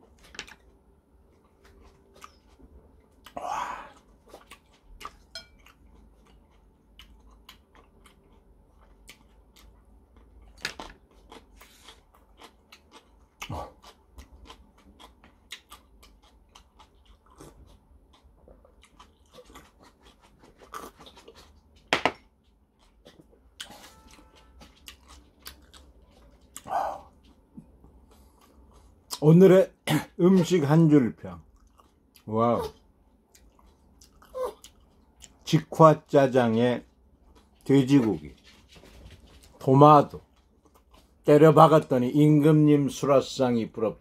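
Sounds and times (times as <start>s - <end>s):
man chewing and lip-smacking: 0.0s - 29.2s, 31.4s - 35.6s, 40.2s - 41.2s.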